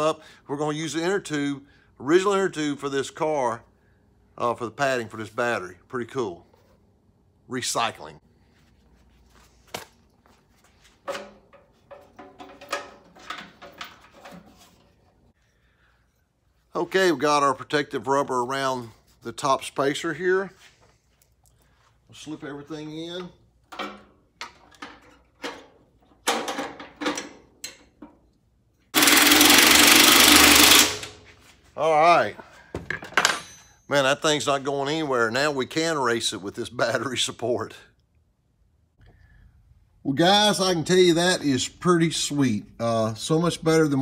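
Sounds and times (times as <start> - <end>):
knocks scrapes and rustles: 8.6 - 15.4
metal parts knocking and clicking: 11.1 - 14.4
power drill running: 28.9 - 31.2.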